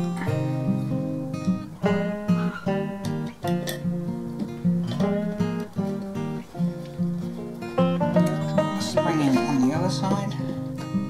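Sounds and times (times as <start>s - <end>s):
acoustic guitar playing: 0.0s - 11.0s.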